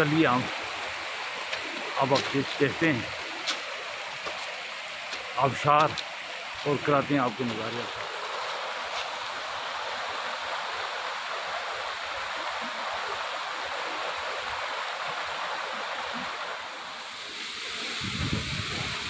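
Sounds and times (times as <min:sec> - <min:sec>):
waterfall falling onto rocks: 0:00.0 - 0:19.0
wind rumble on microphone: 0:17.9 - 0:19.0.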